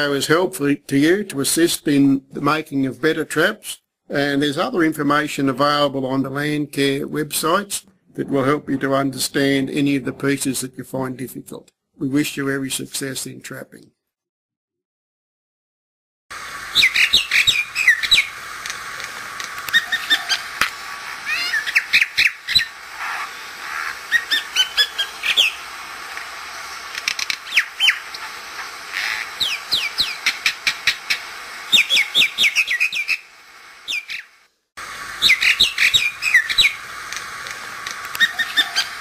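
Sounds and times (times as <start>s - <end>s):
mynas chirping and squawking: 16.7s - 18.4s, 19.7s - 25.8s, 27.4s - 34.4s, 35.1s - 36.8s, 38.2s - 39.0s.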